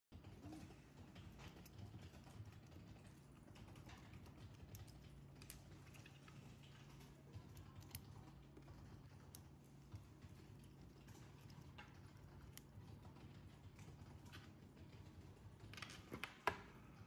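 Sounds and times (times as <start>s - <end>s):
small metal parts clicking: 3.4s - 9.6s.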